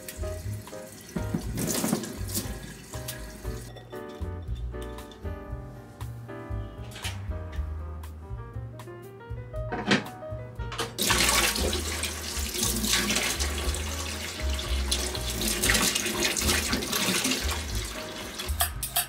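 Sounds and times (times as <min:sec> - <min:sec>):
tap running into metal sink: 0:00.0 - 0:03.7, 0:10.7 - 0:19.0
background music: 0:00.0 - 0:19.0.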